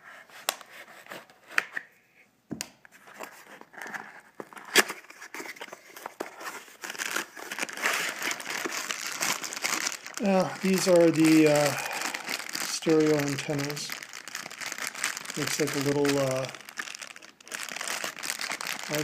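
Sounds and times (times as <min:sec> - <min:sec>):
plastic bag crinkling: 0:04.4 - 0:19.0.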